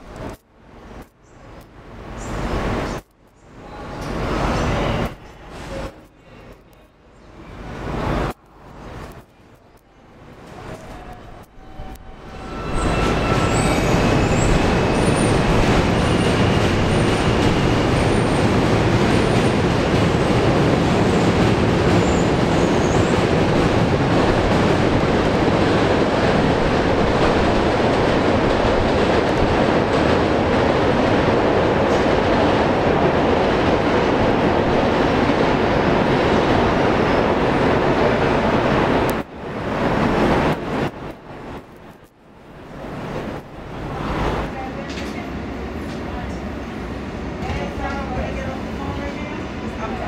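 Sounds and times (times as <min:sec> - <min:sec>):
train wheels rumbling on rails: 0:10.2 - 0:50.0
high wheel squeals: 0:11.6 - 0:17.6.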